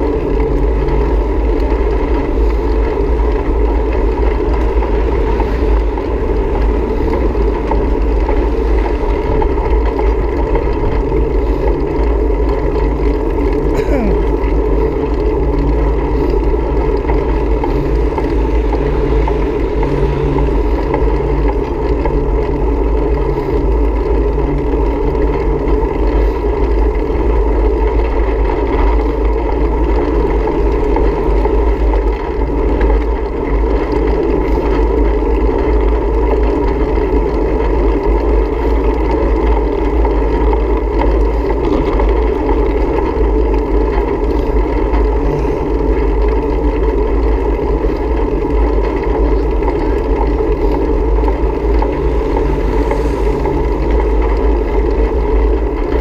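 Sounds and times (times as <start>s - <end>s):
road rumble: 0.0s - 56.0s
wind rush: 16.0s - 24.0s, 43.9s - 56.0s.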